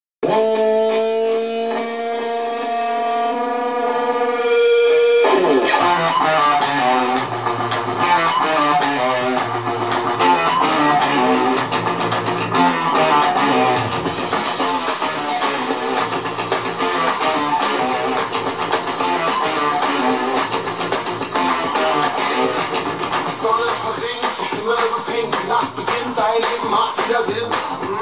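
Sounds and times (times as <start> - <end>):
band music with guitar and drums: 0.2 - 28.0.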